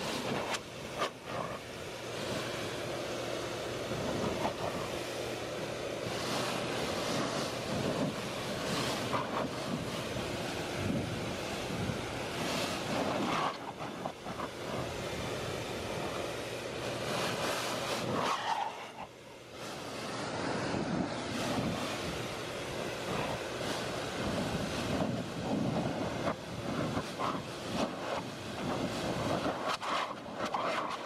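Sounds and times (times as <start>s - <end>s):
leaf blower running: 0.0s - 18.1s.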